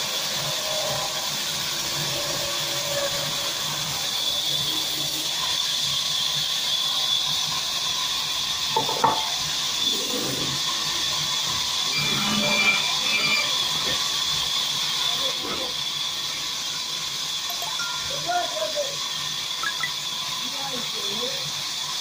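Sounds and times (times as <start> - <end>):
band saw cutting timber: 10.0 - 17.4.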